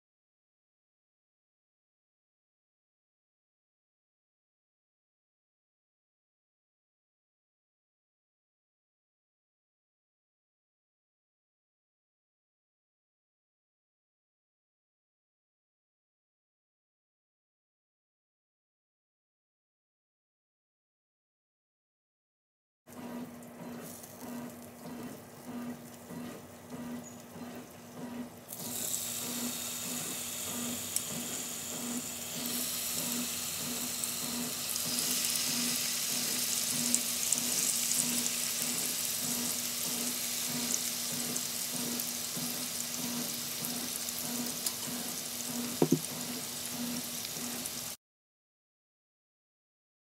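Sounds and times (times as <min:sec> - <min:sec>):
meat sizzling in hot oil: 0:28.5 - 0:48.0
sharp knocks: 0:45.8 - 0:46.1.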